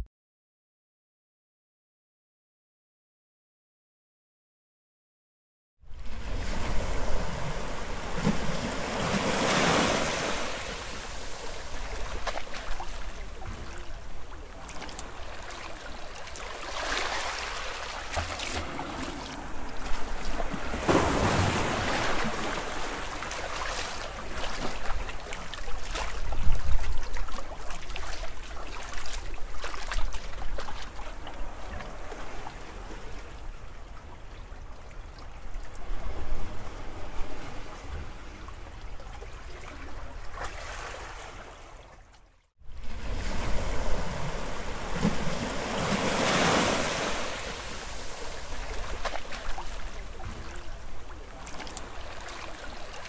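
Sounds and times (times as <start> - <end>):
ocean waves rushing: 6.2 - 25.6, 42.8 - 53.0.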